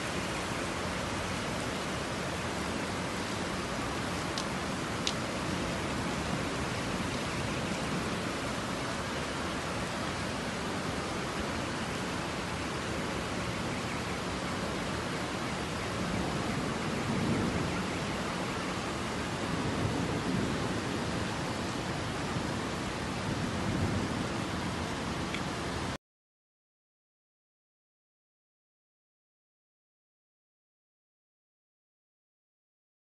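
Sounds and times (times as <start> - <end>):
heavy rain: 0.0 - 26.0.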